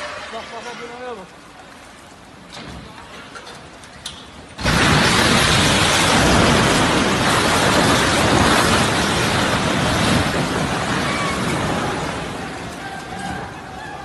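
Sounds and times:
crashing rumble of falling concrete: 4.6s - 14.0s.

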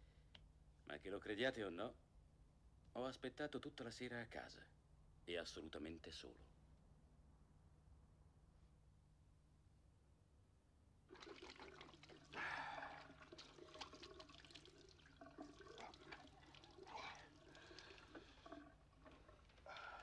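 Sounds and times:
tap running into washbasin: 11.1s - 20.0s
water splashing on face: 11.1s - 20.0s.

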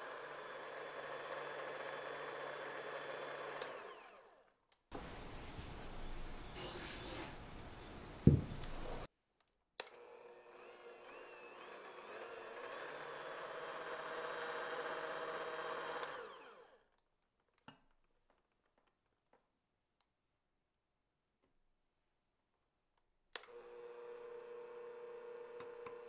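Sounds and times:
electric hand mixer whirring: 0.0s - 4.5s, 9.9s - 16.9s, 23.5s - 26.0s.

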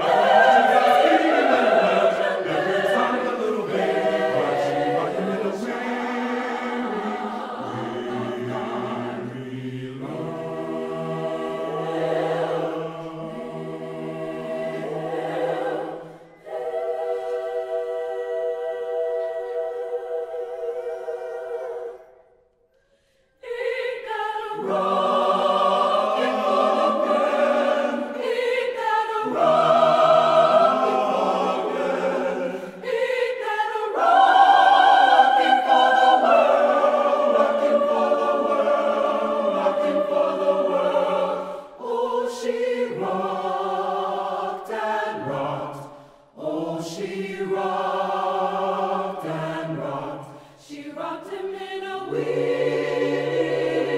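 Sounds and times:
mixed choir singing: 0.0s - 22.4s, 23.4s - 53.9s.

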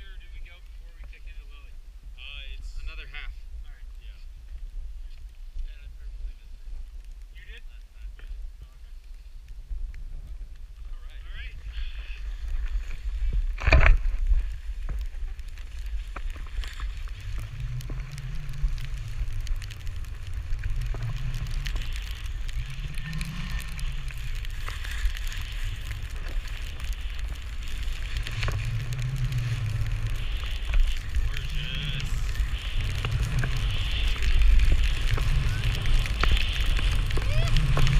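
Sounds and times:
wind rumbling on microphone: 0.0s - 37.9s
skis swishing through snow: 11.4s - 37.9s.

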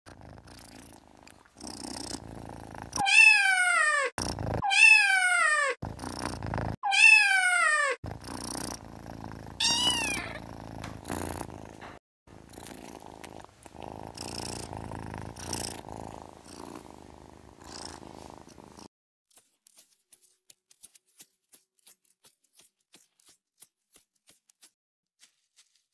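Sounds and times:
low purring: 0.1s - 3.1s, 4.2s - 4.6s, 5.8s - 6.8s, 8.0s - 18.9s
kitten meowing: 3.0s - 5.8s, 6.8s - 8.0s, 9.6s - 10.4s.

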